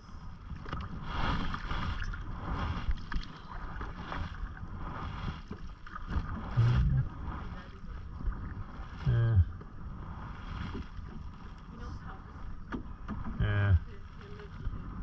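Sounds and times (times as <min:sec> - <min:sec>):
paddle strokes through water: 0:00.0 - 0:15.0
wind rumble on microphone: 0:00.0 - 0:15.0
loud low hollow tone: 0:06.6 - 0:07.2.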